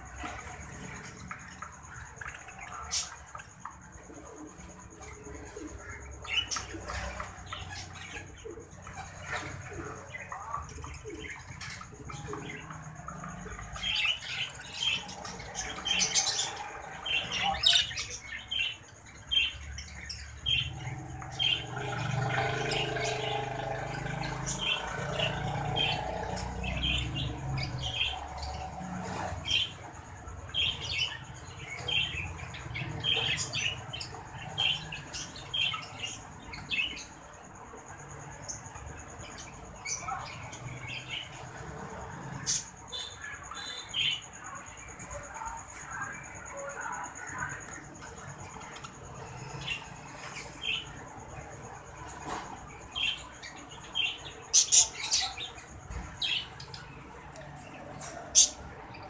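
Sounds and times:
budgerigars chirping and squawking: 53.0s - 56.8s, 58.0s - 58.6s.

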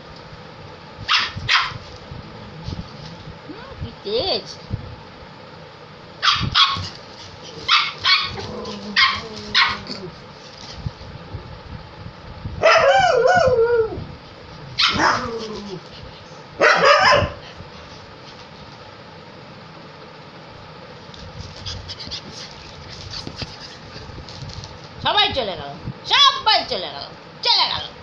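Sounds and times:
puppy yapping: 1.1s - 1.8s, 6.2s - 10.1s, 14.8s - 15.8s, 16.6s - 17.4s.

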